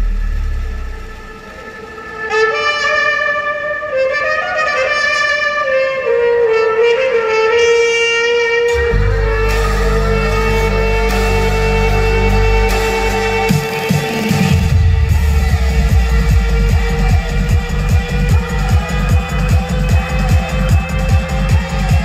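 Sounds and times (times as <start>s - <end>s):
heavy deep bass: 0.0s - 2.9s, 8.7s - 22.0s
lead melody: 0.0s - 22.0s.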